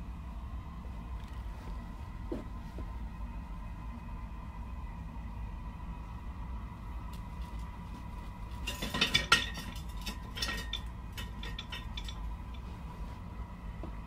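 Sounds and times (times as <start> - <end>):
metal pots and lids clattering: 8.6 - 12.2.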